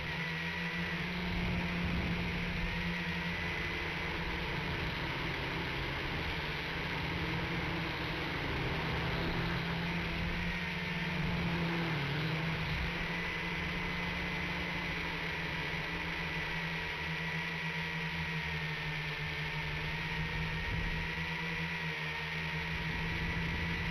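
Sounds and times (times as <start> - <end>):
toy drone propellers buzzing: 0.0 - 23.9.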